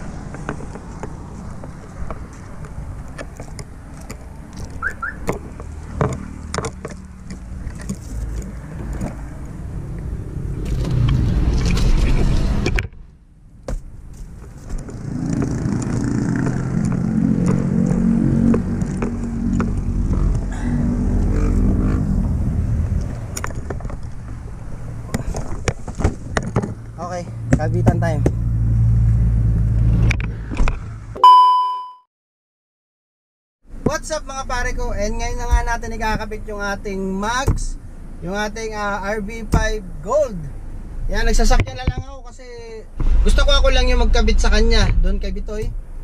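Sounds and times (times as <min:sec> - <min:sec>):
motor vehicle rumble: 0:00.0 - 0:31.2, 0:33.6 - 0:46.0
sharp clicks and knocks: 0:00.2 - 0:09.2, 0:13.6 - 0:20.5.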